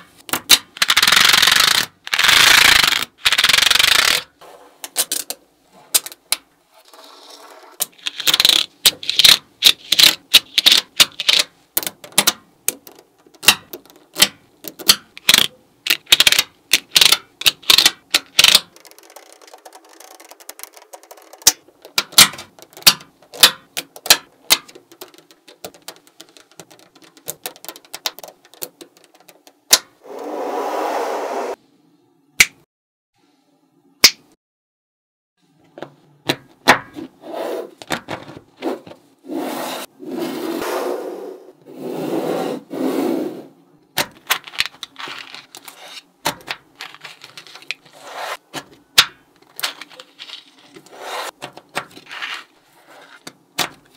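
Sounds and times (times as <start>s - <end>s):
card rasping over balls: 0.0s - 5.0s, 5.9s - 30.4s, 44.0s - 53.9s
magnet balls clicking together: 0.3s - 4.3s, 7.8s - 29.8s.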